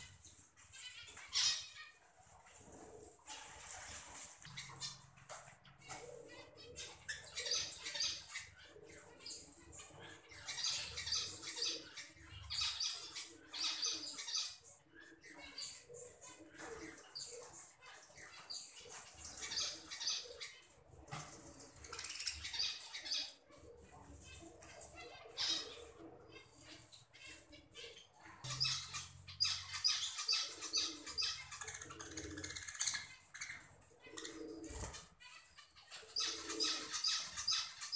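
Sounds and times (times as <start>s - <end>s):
budgerigars chirping and chattering: 0.0s - 3.5s, 4.4s - 37.9s
budgerigars chirping: 6.7s - 8.5s, 27.8s - 37.9s.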